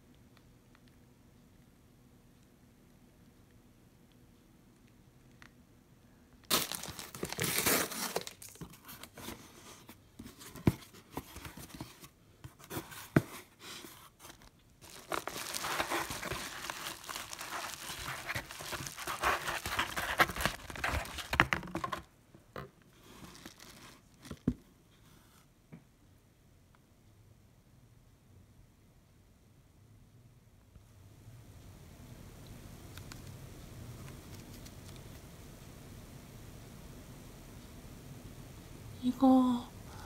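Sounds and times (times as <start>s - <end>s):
plastic wrap crinkling: 6.4s - 9.3s, 13.6s - 22.1s, 23.0s - 24.5s.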